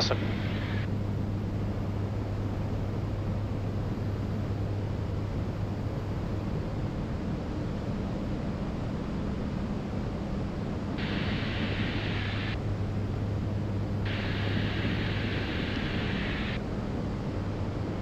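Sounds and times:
radio hiss: 0.0 - 0.9, 11.0 - 12.6, 14.1 - 16.6
aircraft engines droning: 0.0 - 18.0.

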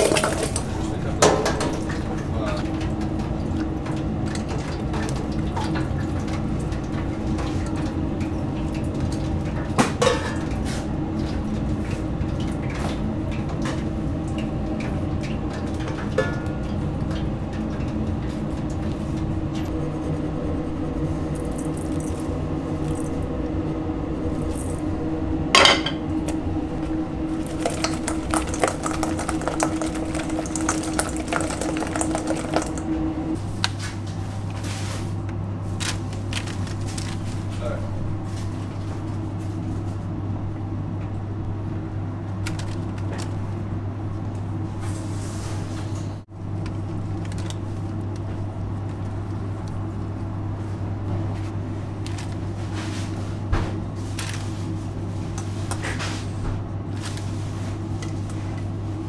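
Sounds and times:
chicken wings rattling in bowl: 0.0 - 1.7, 27.4 - 32.9
steady hum: 0.0 - 59.0.

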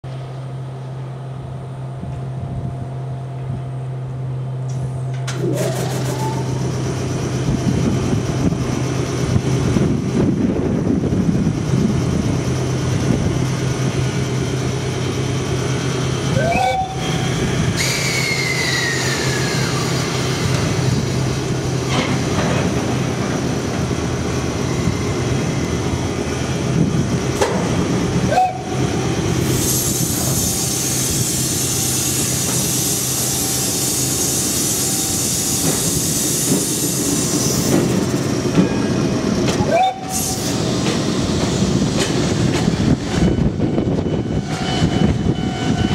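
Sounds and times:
squeals and whine: 5.3 - 6.9, 16.3 - 21.2, 42.7 - 45.9
brake air hiss: 17.7 - 20.7, 29.4 - 38.1, 40.0 - 40.7.

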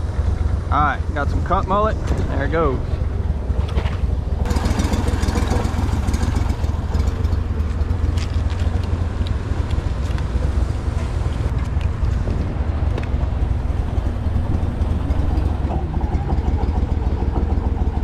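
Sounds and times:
outboard motor running: 2.6 - 11.4, 13.2 - 18.0.

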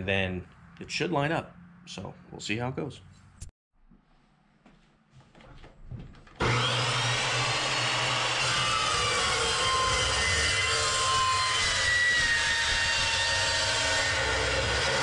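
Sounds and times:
chop saw cutting steel: 6.4 - 15.0.

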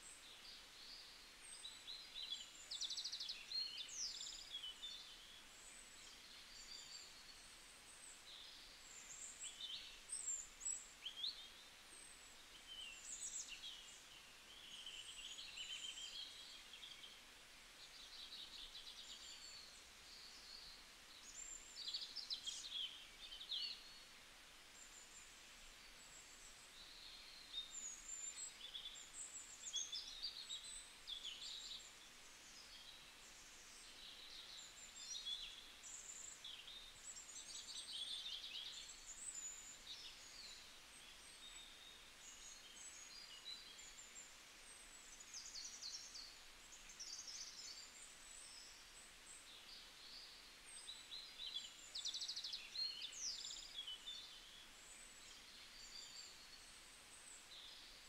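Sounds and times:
faint outdoor air hiss: 0.0 - 58.0
small birds chirping: 0.0 - 58.0.

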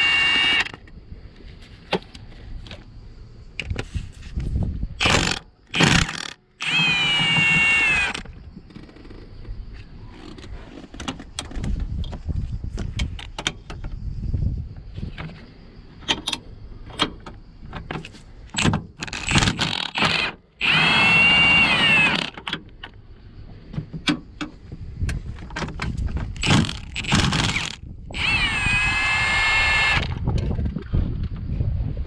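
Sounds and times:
power driver motor whine: 0.0 - 0.8, 5.0 - 8.3, 19.0 - 22.4, 26.4 - 30.2.

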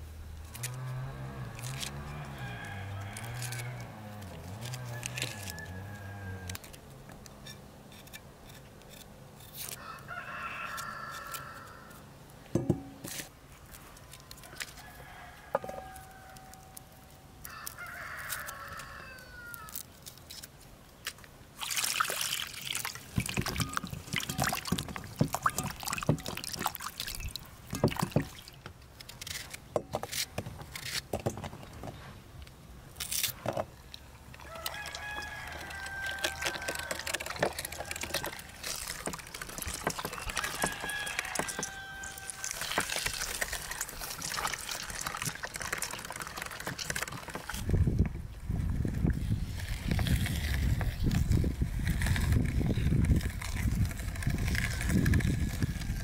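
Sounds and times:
knife cutting dry onion skin: 0.4 - 9.8
rooster crowing: 1.8 - 6.6, 9.7 - 12.1, 14.5 - 16.8, 17.4 - 19.8, 34.4 - 42.9.

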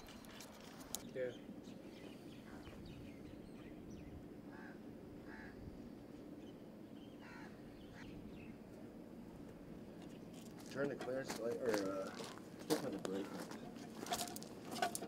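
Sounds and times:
bird calls: 0.0 - 5.6, 6.2 - 8.7, 11.7 - 15.0
steady low hum: 0.0 - 15.0.

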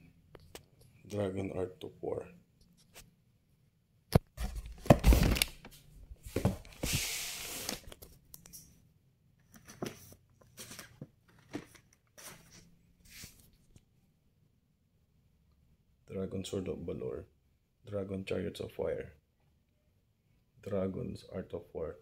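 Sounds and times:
cardboard rustles and bumps: 4.3 - 5.6, 6.2 - 7.0
cardboard box scraping slide: 6.3 - 7.8.

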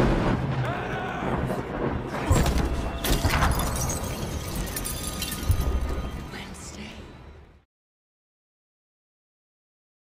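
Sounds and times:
heavy rain: 0.0 - 6.4.

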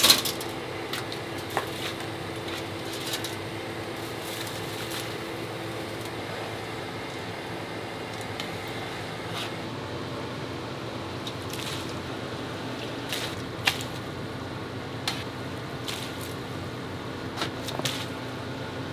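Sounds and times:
metal clatter: 0.0 - 3.4
ventilation fan humming: 0.0 - 18.9.

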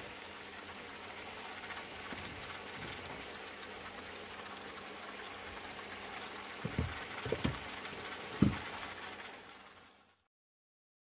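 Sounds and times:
food sizzling in a frying pan: 0.0 - 10.3.

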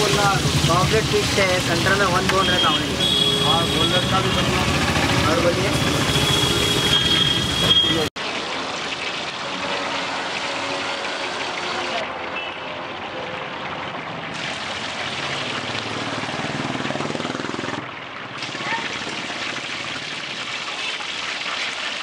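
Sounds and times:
fish sizzling in oil: 0.0 - 3.2.

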